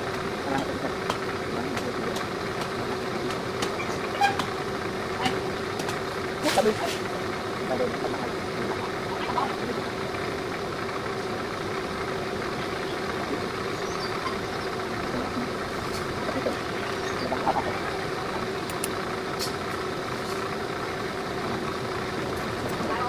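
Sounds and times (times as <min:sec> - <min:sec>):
truck engine idling: 0:00.0 - 0:23.0
faint sharp clicks: 0:18.6 - 0:19.0.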